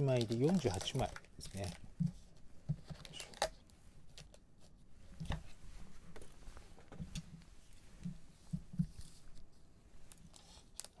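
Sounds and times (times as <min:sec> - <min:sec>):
foil card packs rustling: 0:00.0 - 0:01.8.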